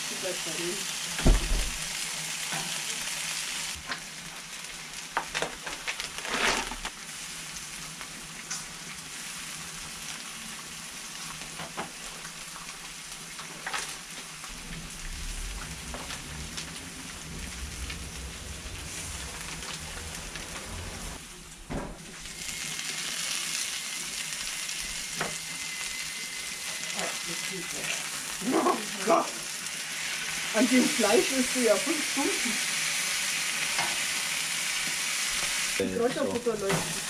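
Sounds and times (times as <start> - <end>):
food sizzling on griddle: 0.0 - 37.0
clicks and rustles of food handling: 5.2 - 6.9
low rumble: 14.4 - 21.6.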